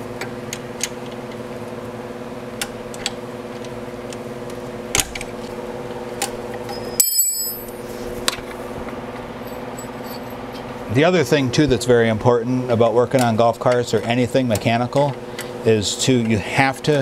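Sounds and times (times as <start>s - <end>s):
steady low hum: 0.0s - 17.0s
dropped tool clanging: 6.7s - 7.8s
metal tools clinking: 6.7s - 7.8s, 9.4s - 10.4s.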